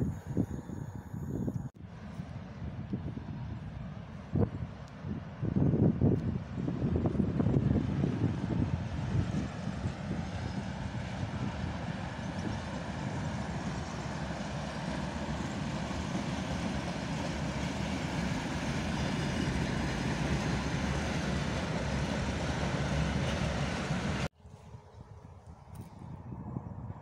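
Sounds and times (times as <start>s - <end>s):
diesel locomotive engine running: 0.0s - 24.3s.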